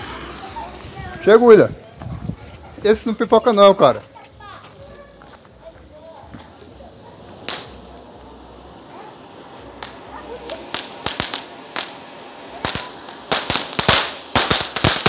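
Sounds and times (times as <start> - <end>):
firework cracks: 0.0 - 1.1, 4.9 - 15.0
firework fountain hissing: 0.0 - 15.0.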